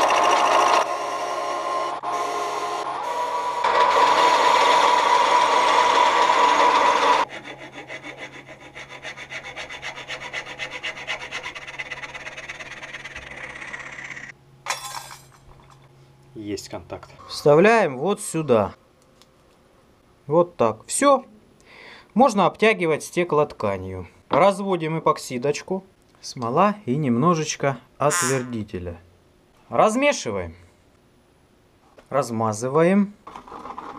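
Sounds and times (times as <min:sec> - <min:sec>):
lathe cutting wood: 0:00.0 - 0:08.3
hand saw cutting wood: 0:03.6 - 0:13.3.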